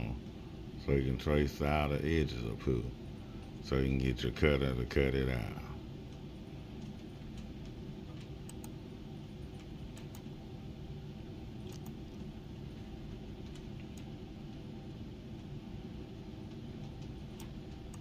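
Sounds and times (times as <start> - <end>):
steady low hum: 0.0 - 18.0
computer mouse clicks: 6.8 - 8.8, 9.6 - 10.3, 11.6 - 12.3, 13.5 - 14.1, 16.8 - 18.0.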